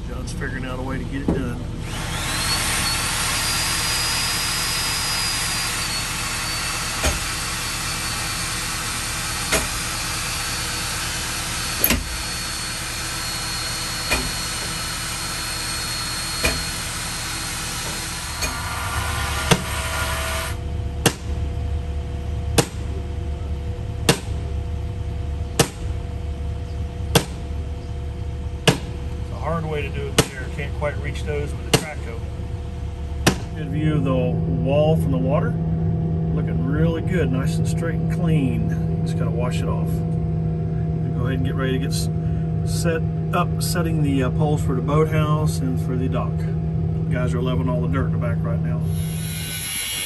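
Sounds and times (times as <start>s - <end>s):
mechanical running noise: 0.0s - 35.0s, 47.8s - 50.0s
low rumble: 18.0s - 50.0s
faint high whine: 47.3s - 50.0s.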